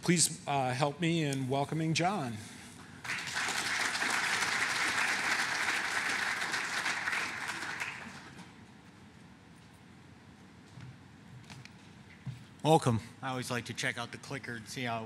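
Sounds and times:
audience applauding: 3.0 - 8.4.

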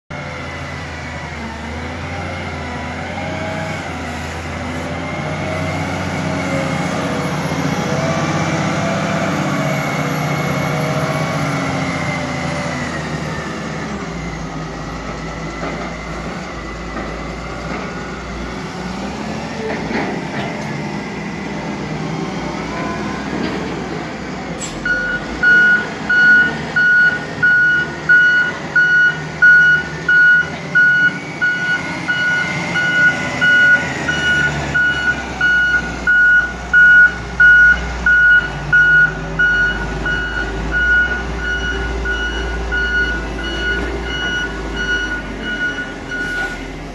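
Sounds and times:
diesel machinery running: 0.1 - 46.9
reversing alarm beeping: 24.6 - 46.8.

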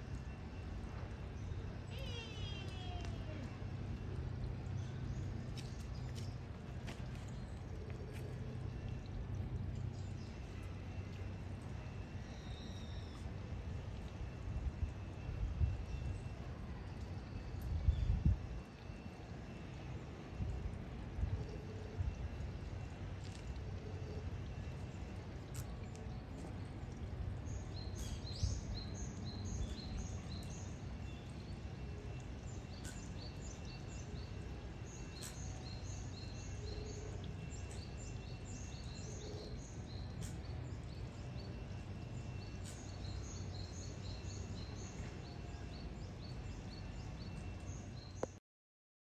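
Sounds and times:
low background rumble: 0.0 - 43.6
small birds chirping: 24.5 - 48.4.

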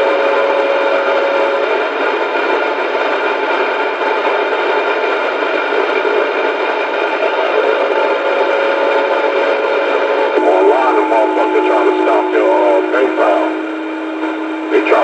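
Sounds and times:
radio static hiss: 7.0 - 15.0
faint steady tone: 10.4 - 15.0.

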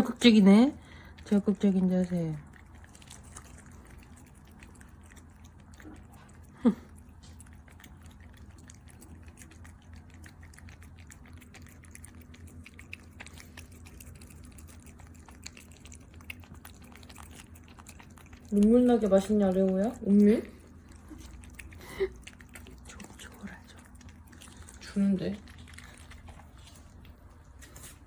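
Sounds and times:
cats licking: 0.0 - 28.0
low steady hum: 0.0 - 28.0.

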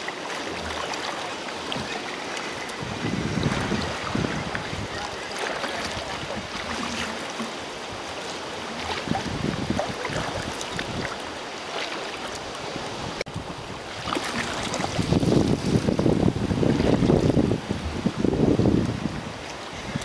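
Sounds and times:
water splashing against kayak hull: 0.0 - 20.0
wind buffeting microphone: 2.6 - 11.2, 12.6 - 20.0.

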